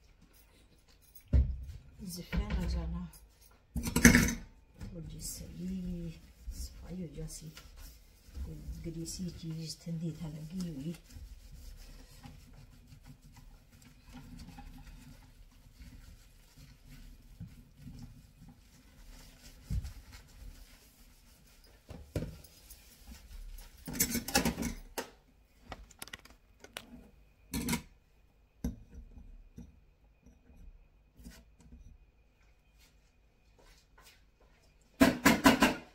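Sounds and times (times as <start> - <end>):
cloth scrubbing metal sink: 4.4 - 24.7.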